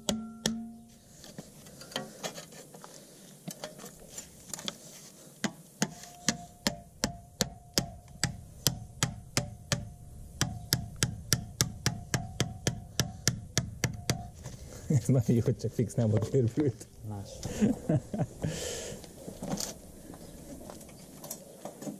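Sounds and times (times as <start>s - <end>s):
mallet hammering sheet metal: 0.0s - 0.8s, 5.8s - 14.3s.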